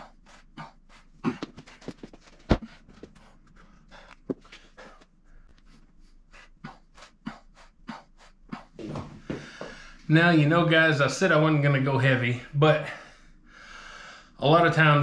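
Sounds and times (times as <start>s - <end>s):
man breathing hard: 0.0s - 10.1s, 12.8s - 14.4s.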